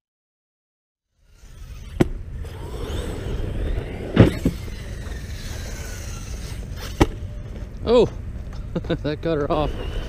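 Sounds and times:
rc truck motor whine: 0:01.1 - 0:07.5, 0:09.4 - 0:10.0
low wind rumble: 0:01.1 - 0:10.0.

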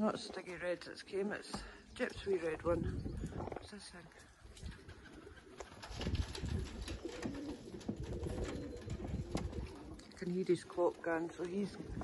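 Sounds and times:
pigeons cooing: 0:03.1 - 0:12.0.

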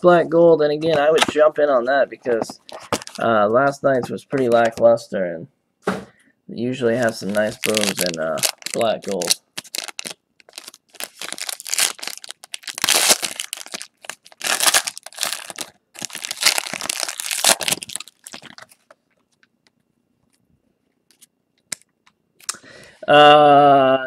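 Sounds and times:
foil wrapper crinkling and tearing: 0:07.0 - 0:19.0.

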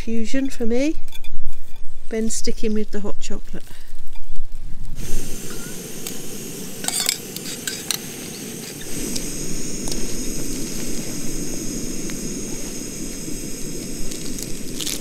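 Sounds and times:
gas stove burner hissing: 0:04.9 - 0:15.0.

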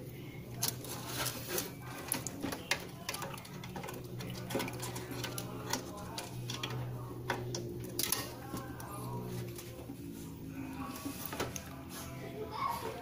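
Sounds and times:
steady low hum: 0:00.0 - 0:13.0
hand handling cables and parts: 0:00.6 - 0:10.2.

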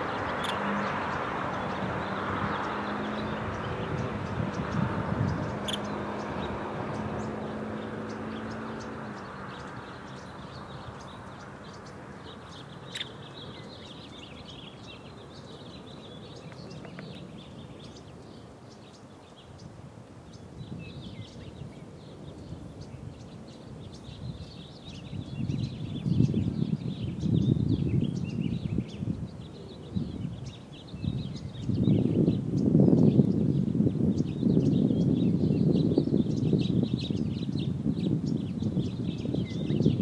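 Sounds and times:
high bird chirps: 0:00.0 - 0:18.0
distant engine drone: 0:00.0 - 0:18.4.

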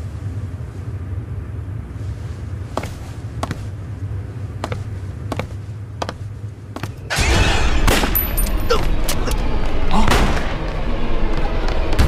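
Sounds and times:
steady low hum: 0:00.0 - 0:12.0
hard-soled footsteps on stone: 0:02.7 - 0:03.8, 0:04.4 - 0:07.1.

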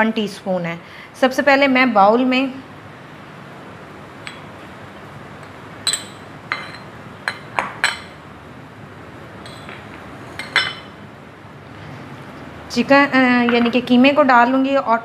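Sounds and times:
ceramic bowls clinking on stone: 0:05.8 - 0:08.2, 0:09.4 - 0:09.8, 0:10.4 - 0:11.0.

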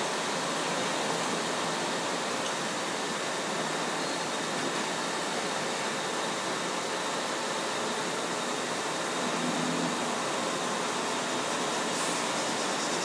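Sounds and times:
factory machines droning: 0:00.0 - 0:13.0
faint steady whines: 0:00.0 - 0:13.0.

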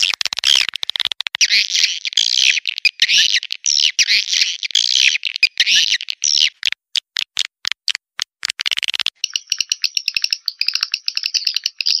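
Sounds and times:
bird chirps and twittering: 0:01.4 - 0:06.6, 0:09.2 - 0:12.0.

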